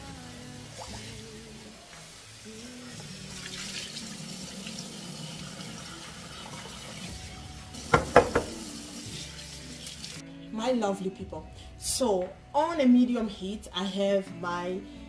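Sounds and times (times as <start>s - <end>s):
water poured off: 0.7s - 1.6s, 2.4s - 10.2s
tap water splashing into sink: 7.8s - 8.9s.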